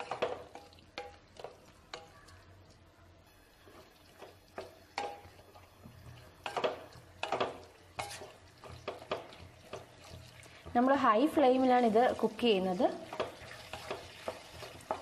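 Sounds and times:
faint sizzle: 0.0 - 15.0
wooden spatula scraping pan: 7.2 - 9.2.

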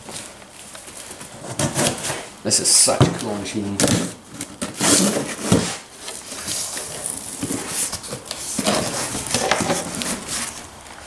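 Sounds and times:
cardboard flaps scraping and rustling: 0.0 - 11.0
packing tape ripping: 0.8 - 2.3, 3.8 - 10.7.

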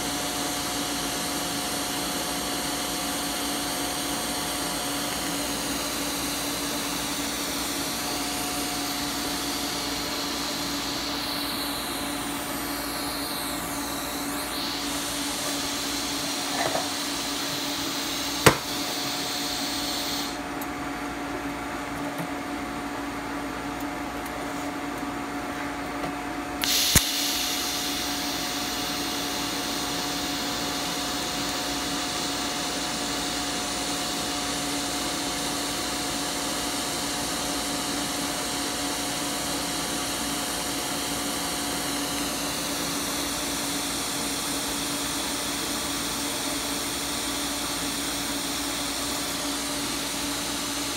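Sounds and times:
welding arc hissing: 4.0 - 20.4, 26.6 - 34.0
arc strike click: 26.6 - 28.2.

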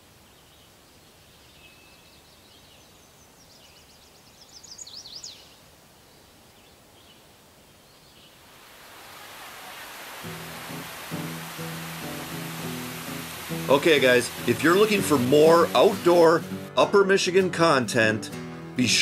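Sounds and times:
songbird singing: 0.0 - 16.7
faint outdoor background: 0.0 - 19.0
steady rushing noise: 8.4 - 16.7.

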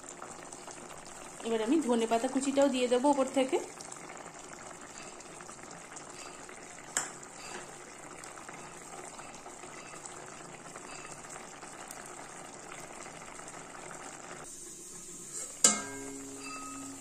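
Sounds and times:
curry bubbling in a pot: 0.0 - 17.0.

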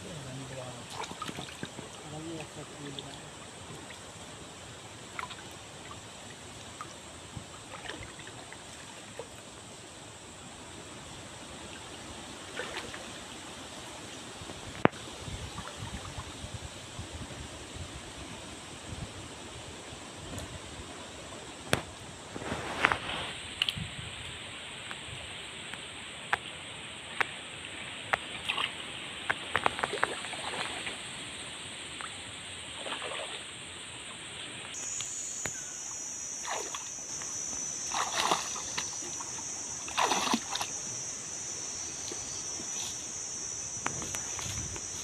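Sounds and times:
water sloshing and splashing: 0.3 - 4.3, 4.9 - 9.4, 12.4 - 13.3, 28.1 - 31.3, 31.9 - 33.5, 36.4 - 41.1.

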